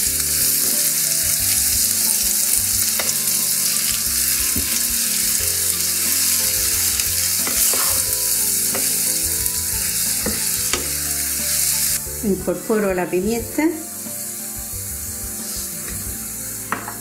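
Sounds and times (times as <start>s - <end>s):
vegetables sizzling in a frying pan: 0.0s - 17.0s
spatula knocking against pan: 7.4s - 8.1s.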